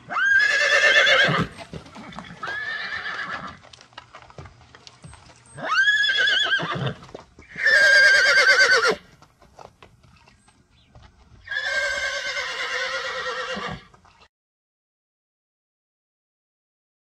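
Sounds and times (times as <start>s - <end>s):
horse whinnying: 0.0s - 3.6s, 5.6s - 9.1s, 11.4s - 13.9s.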